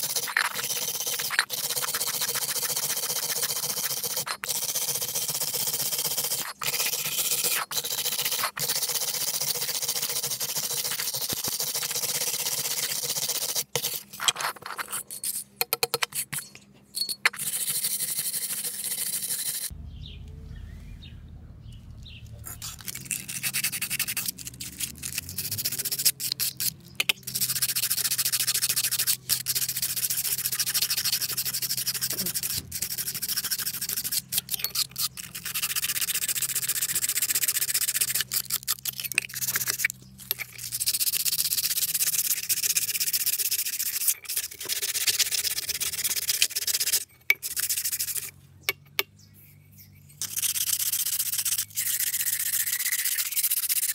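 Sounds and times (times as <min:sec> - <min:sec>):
wire brush scrubbing metal bell: 0:00.0 - 0:15.5, 0:16.3 - 0:19.7, 0:22.4 - 0:48.3, 0:50.0 - 0:53.9
low rumble: 0:19.7 - 0:22.5.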